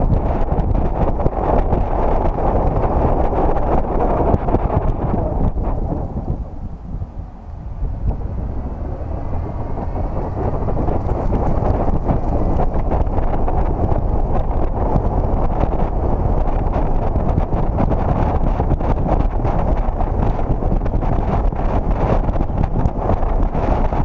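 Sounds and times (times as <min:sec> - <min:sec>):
road and engine rumble: 0:00.0 - 0:24.0
wind buffeting microphone: 0:00.0 - 0:24.0.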